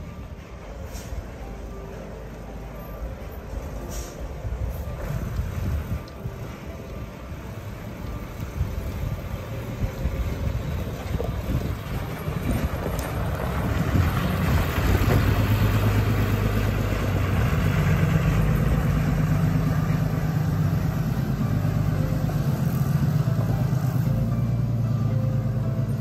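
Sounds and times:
vehicle engine running: 3.5s - 26.0s
hiss: 3.9s - 5.9s.

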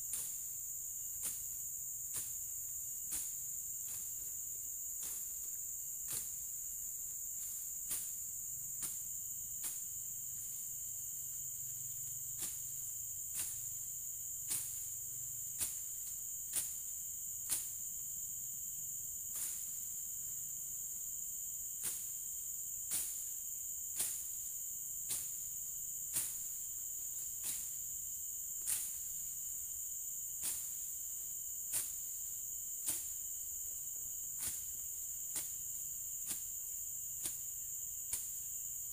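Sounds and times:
high-pitched insect chorus: 0.0s - 38.9s
machete chopping through undergrowth: 0.1s - 0.5s, 1.1s - 4.4s, 5.0s - 6.6s, 7.4s - 10.5s, 12.4s - 12.7s, 13.3s - 13.6s, 14.4s - 14.9s, 15.5s - 17.8s, 19.3s - 19.8s, 21.7s - 22.2s, 22.8s - 24.4s, 25.0s - 25.5s, 26.1s - 26.6s, 27.4s - 27.8s, 28.6s - 29.2s, 30.4s - 31.0s, 31.6s - 33.4s, 34.4s - 38.5s.

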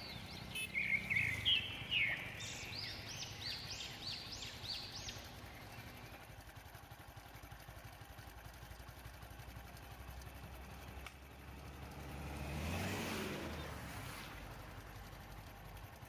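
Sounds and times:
bird calling: 0.0s - 6.3s
vehicle engines droning: 0.0s - 16.0s.

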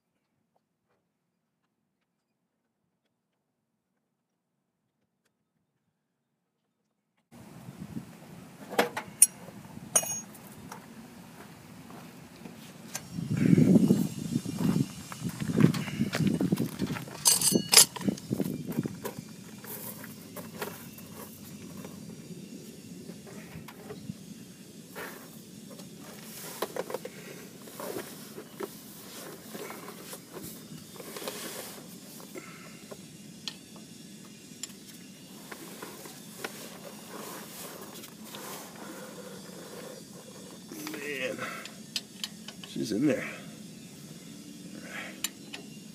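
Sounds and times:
hand tools clicking and knocking: 8.8s - 10.4s, 15.5s - 22.0s
footsteps on gravel: 11.2s - 22.1s.

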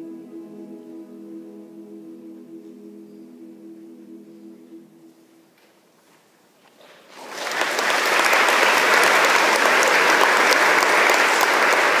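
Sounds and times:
audience applause: 7.1s - 12.0s.

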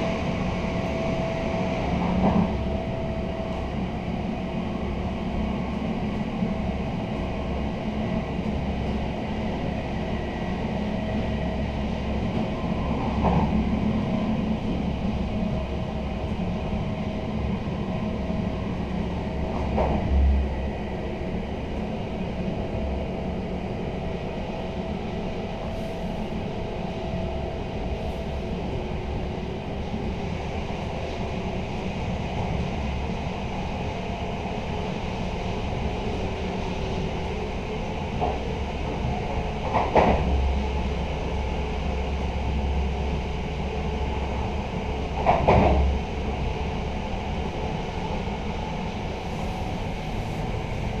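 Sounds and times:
train wheels rumbling on rail: 0.0s - 51.0s
train knocks: 1.9s - 3.6s, 19.3s - 20.4s, 38.1s - 40.8s, 45.1s - 46.2s.

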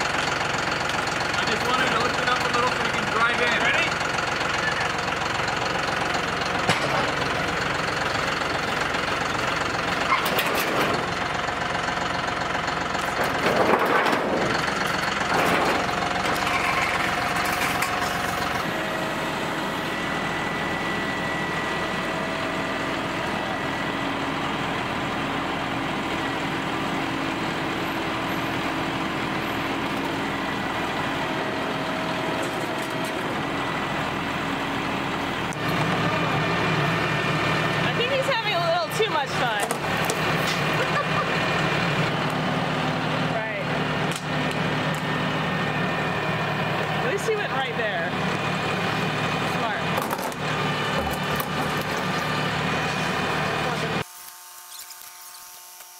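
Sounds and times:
tractor diesel engine running: 0.0s - 54.1s
knocks and metal clatters: 6.6s - 7.2s, 10.0s - 11.1s, 13.0s - 18.5s.

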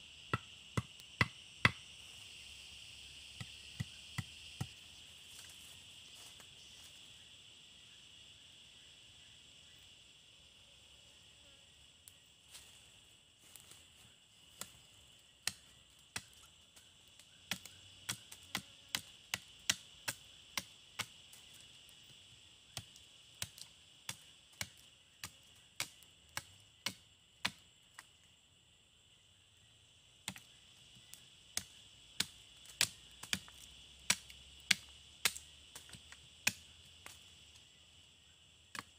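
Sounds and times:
machete chopping wooden stick: 31.6s - 37.2s.

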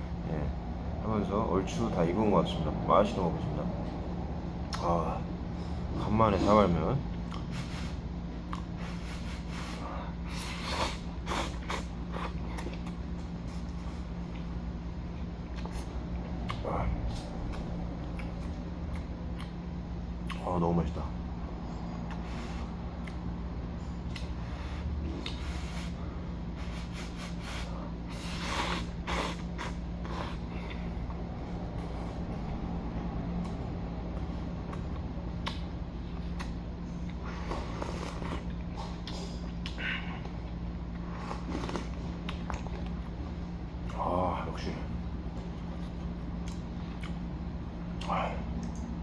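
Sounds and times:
steady low hum: 0.0s - 49.0s
person slurping noodles: 26.6s - 30.5s, 37.2s - 38.5s.

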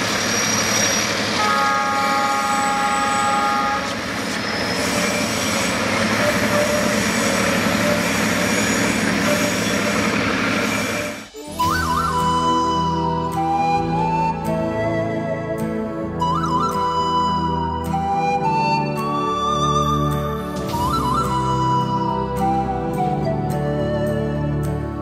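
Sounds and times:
train wheels rumbling on rails: 0.0s - 11.4s
flute music: 1.1s - 25.0s.

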